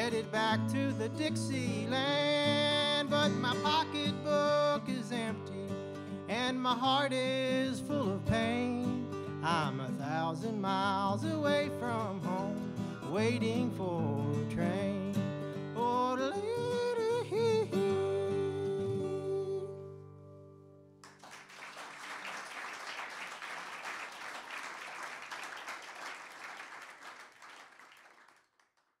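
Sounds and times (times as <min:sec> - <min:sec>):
acoustic guitar: 0:00.0 - 0:21.2
man yodeling: 0:15.8 - 0:19.9
audience applause: 0:21.0 - 0:28.8.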